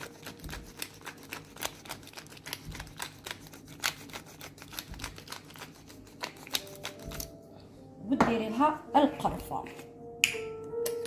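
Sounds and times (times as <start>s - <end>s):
pepper mill grinding: 0.0s - 7.3s.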